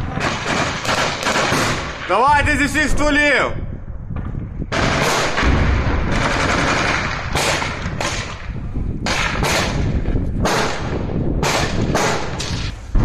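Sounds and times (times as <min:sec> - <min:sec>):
automatic gunfire bursts: 0:06.1 - 0:08.3.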